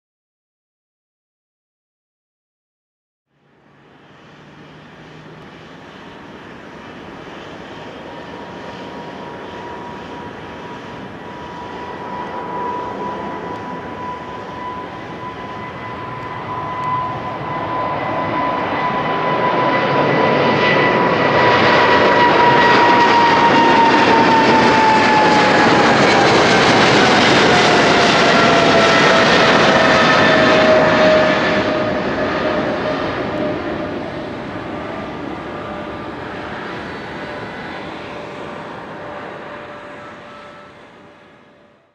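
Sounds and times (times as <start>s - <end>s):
jet engines roaring with whine: 3.3s - 41.9s.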